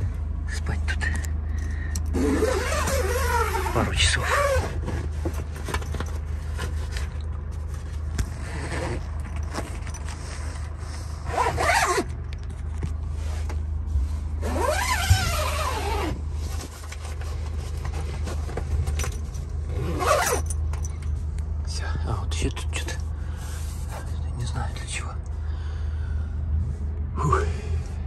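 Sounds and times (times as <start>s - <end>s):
steady low hum: 0.0s - 28.0s
zipper on fabric tent: 2.1s - 5.2s, 8.4s - 9.1s, 11.2s - 12.1s, 14.4s - 16.2s, 19.7s - 20.4s.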